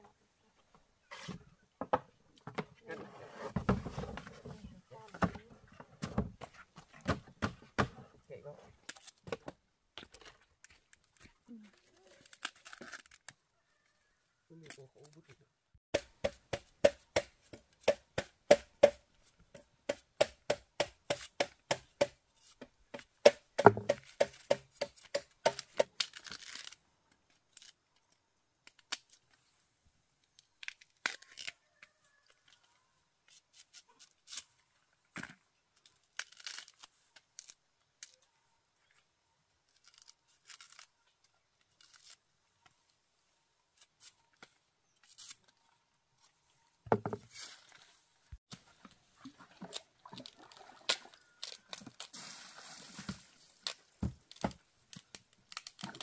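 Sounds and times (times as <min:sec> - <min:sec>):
rustling: 0:51.2 - 0:56.0.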